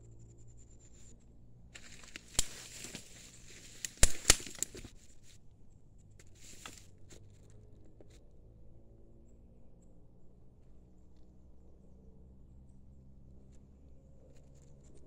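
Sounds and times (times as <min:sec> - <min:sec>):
rustling in dry grass and leaves: 0:01.7 - 0:05.4, 0:06.2 - 0:08.2
sharp clicks: 0:01.8 - 0:04.9.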